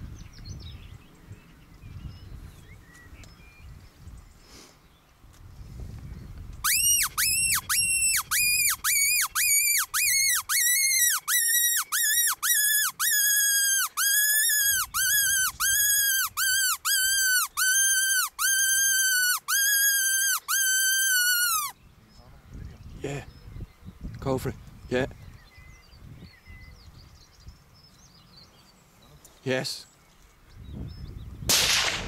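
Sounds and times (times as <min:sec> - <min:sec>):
predator call squealing whistles: 0:06.6 - 0:21.8.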